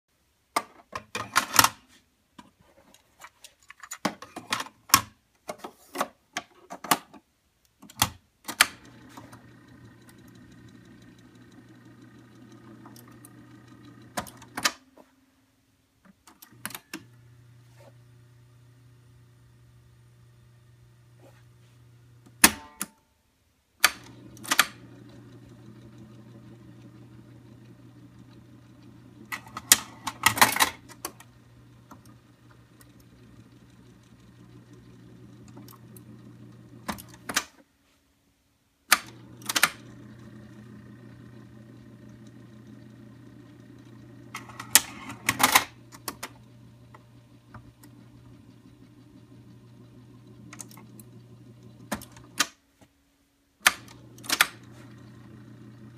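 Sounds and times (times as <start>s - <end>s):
mechanical clicks and clunks: 0.5s - 15.1s, 16.0s - 18.0s, 22.1s - 23.0s, 23.8s - 37.7s, 38.9s - 52.6s, 53.6s - 55.9s
cassette changer motor hum: 7.9s - 15.0s, 16.1s - 23.0s, 23.8s - 37.6s, 38.9s - 52.6s, 53.6s - 55.9s.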